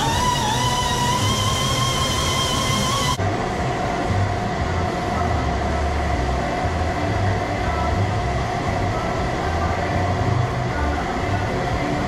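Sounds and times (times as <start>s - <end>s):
motor drone: 0.0s - 3.2s.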